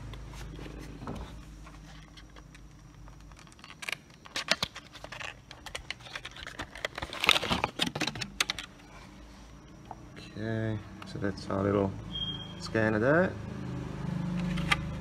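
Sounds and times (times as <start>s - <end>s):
plastic packaging rustling and clicking: 0.0s - 9.0s
packaging scraping: 0.3s - 9.0s.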